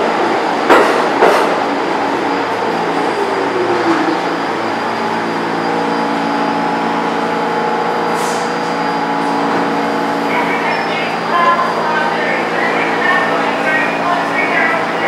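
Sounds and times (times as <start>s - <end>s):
standing train humming: 0.0s - 15.0s
subway train braking: 0.0s - 15.0s.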